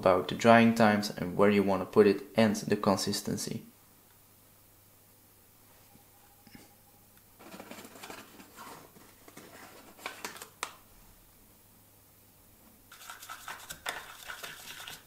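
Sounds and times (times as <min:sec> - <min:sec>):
plastic spoon stirring in cup: 0:07.4 - 0:10.5, 0:12.9 - 0:15.0.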